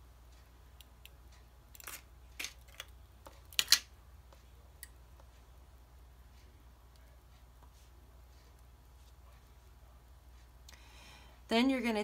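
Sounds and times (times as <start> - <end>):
faint low hum: 0.0 - 12.0
clicks and rustles of handling wire: 0.3 - 5.4.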